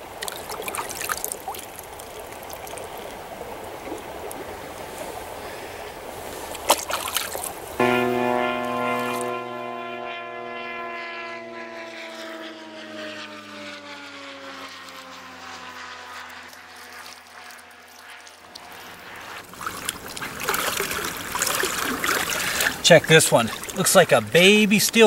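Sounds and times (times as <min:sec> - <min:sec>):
stream rushing: 0:00.0 - 0:09.6, 0:18.4 - 0:25.0
propeller airplane drone: 0:07.5 - 0:25.0.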